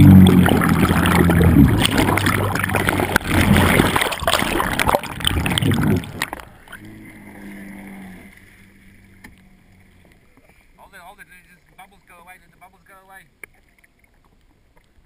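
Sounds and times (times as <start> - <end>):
splashes: 0.0 - 10.6
low hum: 0.0 - 12.1
water rushing and bubbling: 0.0 - 12.5.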